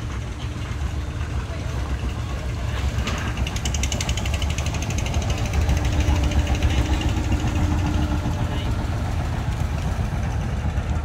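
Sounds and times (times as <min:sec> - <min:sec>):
boat engine droning: 0:00.0 - 0:11.0
fast ticking clatter: 0:02.8 - 0:11.0.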